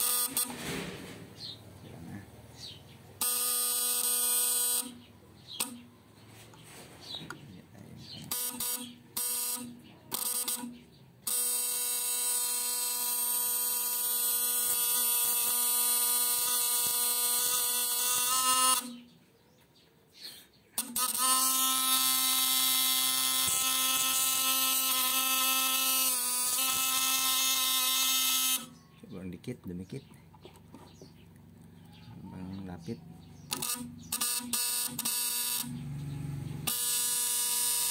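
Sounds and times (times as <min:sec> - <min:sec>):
electric arc sizzling: 0:00.0 - 0:01.3, 0:11.3 - 0:19.0, 0:20.8 - 0:28.7, 0:33.5 - 0:36.0, 0:36.6 - 0:37.9
high-voltage inverter buzzing: 0:00.0 - 0:06.0, 0:08.0 - 0:19.1, 0:20.8 - 0:28.8, 0:33.3 - 0:37.9.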